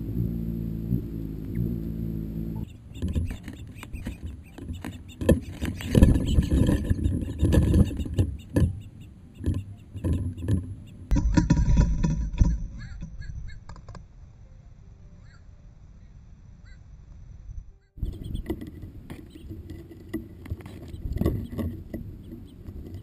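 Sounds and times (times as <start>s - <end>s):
hummingbird wings humming: 0.0s - 11.2s
birds knocking on feeder: 2.8s - 13.9s, 18.0s - 23.0s.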